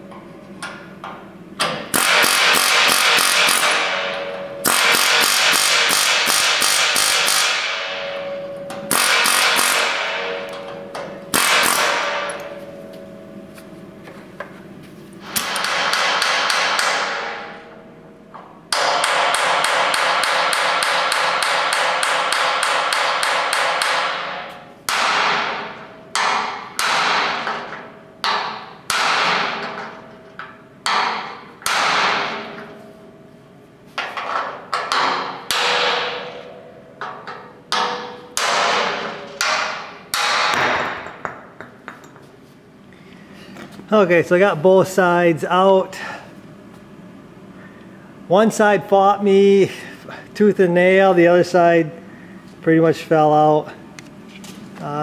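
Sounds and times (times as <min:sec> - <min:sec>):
pneumatic air hammer rattling: 0:01.6 - 0:12.7, 0:15.2 - 0:17.6
sharp metal hits ringing: 0:01.9 - 0:13.5.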